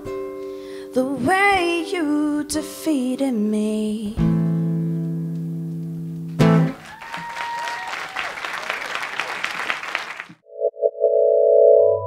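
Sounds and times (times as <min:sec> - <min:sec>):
audience applause: 0:06.7 - 0:10.4.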